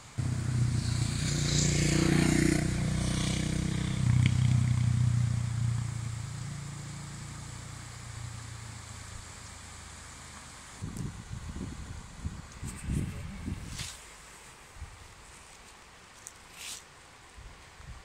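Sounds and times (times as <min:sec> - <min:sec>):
vehicle engine passing: 0:00.2 - 0:10.8.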